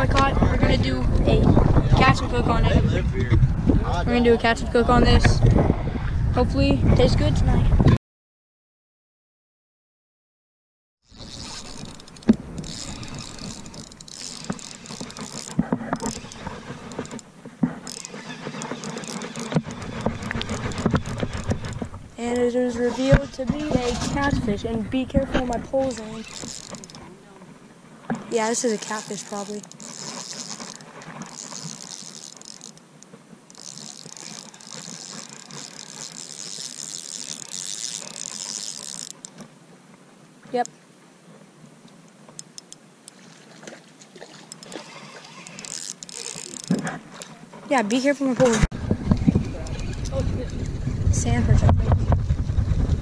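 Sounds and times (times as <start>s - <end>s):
fishing reel clicking: 11.0s - 22.5s, 25.5s - 27.0s, 28.4s - 39.4s, 42.4s - 43.2s, 44.4s - 48.0s, 49.4s - 50.8s.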